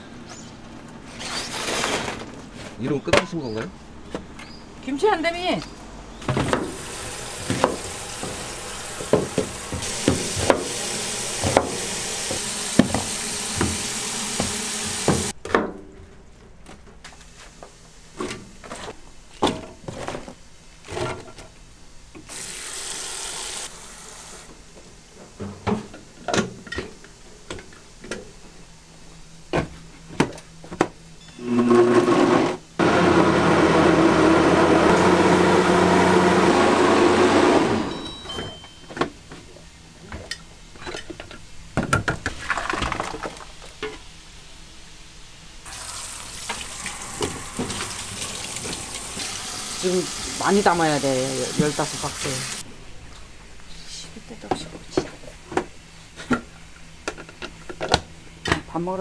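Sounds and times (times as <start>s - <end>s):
kitchen tap running: 6.3s - 15.3s, 22.3s - 24.5s, 45.7s - 52.6s
electric blender grinding: 6.4s - 15.3s, 31.4s - 38.1s, 45.7s - 52.6s.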